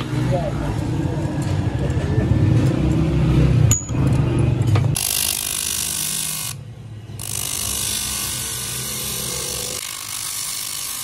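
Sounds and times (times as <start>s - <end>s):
bench grinder wheel hissing: 7.2s - 11.0s.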